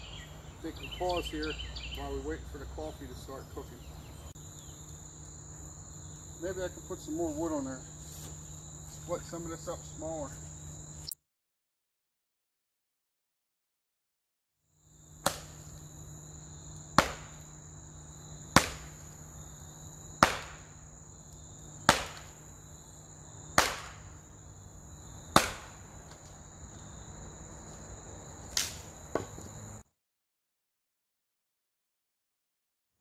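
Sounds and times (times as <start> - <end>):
crickets chirring: 0.0 - 11.2, 14.7 - 29.8
axe chopping firewood: 15.2 - 15.7, 16.9 - 17.5, 18.5 - 19.0, 20.2 - 20.8, 21.8 - 22.4, 23.5 - 24.2, 25.3 - 26.3, 28.5 - 29.4.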